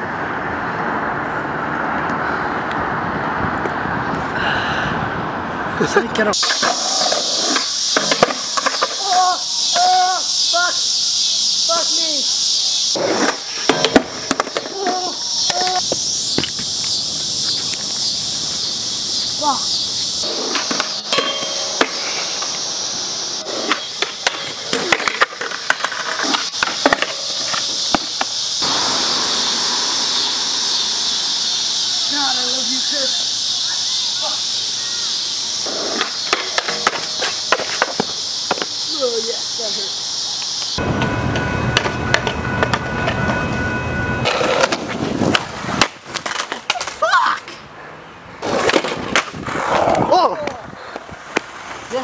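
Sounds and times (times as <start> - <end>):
skateboard wheels rolling on pavement: 0.0 - 52.0
skateboard clacks: 6.3 - 10.1, 13.0 - 16.6, 20.2 - 22.8, 23.4 - 28.9, 35.8 - 38.8, 44.3 - 47.0, 48.4 - 51.8
steady hiss: 6.3 - 40.8
skateboard clacking on metal rail: 6.4 - 9.2, 20.3 - 22.7, 23.7 - 28.3, 36.3 - 38.6.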